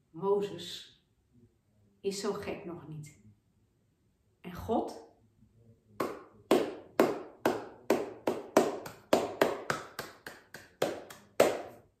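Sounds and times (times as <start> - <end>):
person clapping hands: 6.0 - 11.9.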